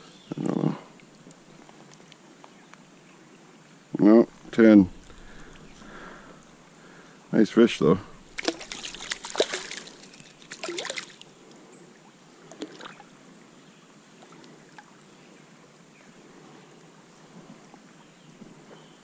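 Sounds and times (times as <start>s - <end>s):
trickling water: 0.4s - 2.3s, 4.0s - 7.0s, 7.6s - 13.2s
water splashing: 4.1s - 7.0s, 7.6s - 11.5s, 12.4s - 13.1s.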